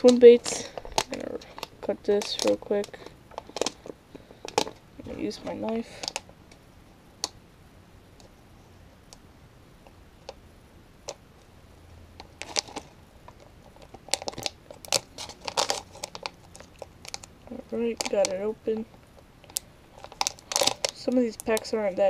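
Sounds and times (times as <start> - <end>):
plastic crinkling and crackling: 0.0 - 6.6, 12.2 - 22.0
knife cutting plastic package: 13.8 - 17.3, 20.0 - 21.6.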